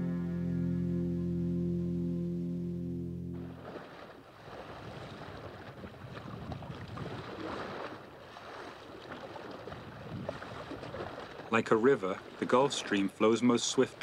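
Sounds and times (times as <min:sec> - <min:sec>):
water splashing along hull: 0:00.0 - 0:14.0
wind noise: 0:04.6 - 0:07.8, 0:09.7 - 0:11.2.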